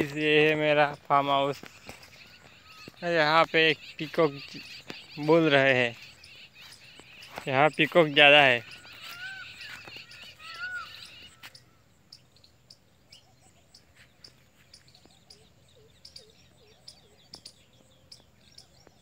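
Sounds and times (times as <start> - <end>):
low looping bird calls: 0.0 - 19.0
small birds chirping: 0.0 - 19.0.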